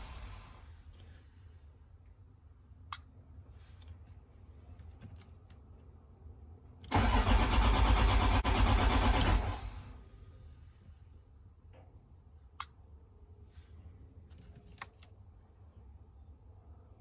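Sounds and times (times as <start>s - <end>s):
engine starter cranking: 6.9s - 9.8s.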